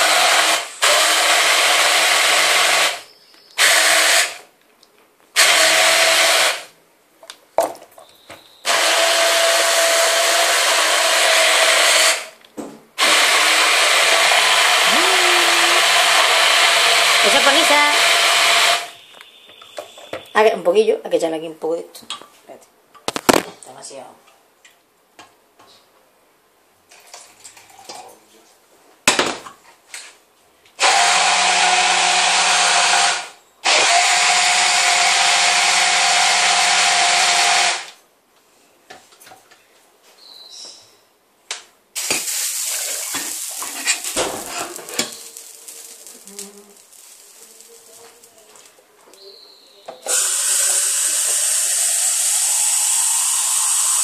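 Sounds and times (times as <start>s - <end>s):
kitchen appliance motor running: 13.0s - 18.9s, 30.8s - 37.9s, 50.1s - 54.0s
tap water running: 42.0s - 47.7s.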